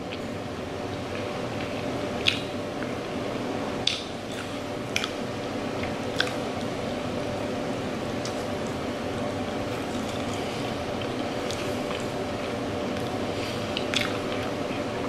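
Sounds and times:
steady background hum: 0:00.0 - 0:15.0
person chewing food: 0:00.9 - 0:05.2, 0:05.8 - 0:06.4, 0:08.2 - 0:14.8
wet mouth smacks: 0:03.8 - 0:05.2.

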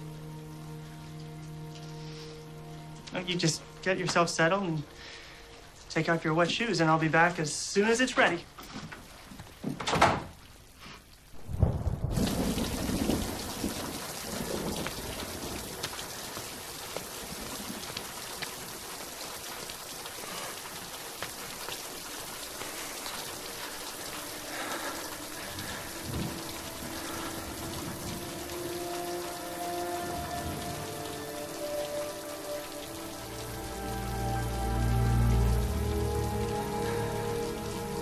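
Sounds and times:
heavy rain falling: 0:00.0 - 0:38.0
thunder rumbling: 0:11.4 - 0:18.3, 0:24.5 - 0:33.4
held music notes: 0:23.1 - 0:38.0.

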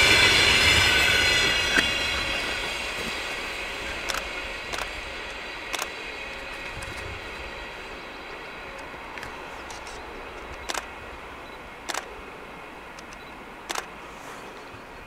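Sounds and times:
train rail noise: 0:00.0 - 0:15.0
sharp double clicks: 0:10.4 - 0:10.9, 0:11.8 - 0:12.1, 0:13.0 - 0:13.9.

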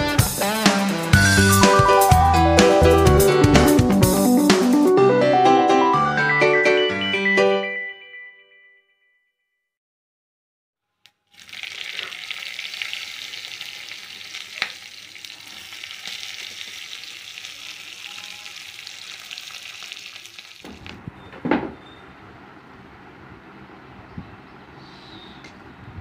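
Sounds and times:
seeds sizzling in hot oil: 0:11.2 - 0:21.0.

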